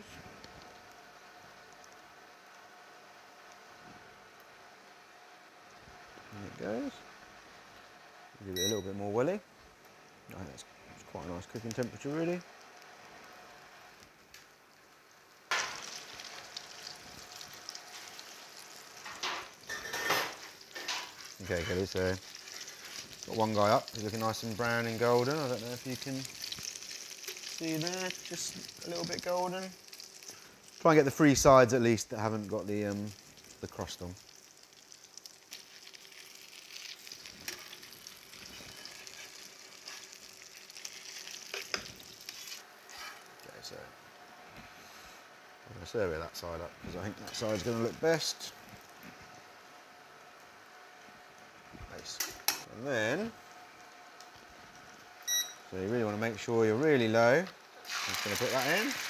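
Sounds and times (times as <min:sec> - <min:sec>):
bread sizzling in butter: 0:00.0 - 0:09.0, 0:09.7 - 0:59.0
palette knife scraping pan: 0:42.3 - 0:43.3.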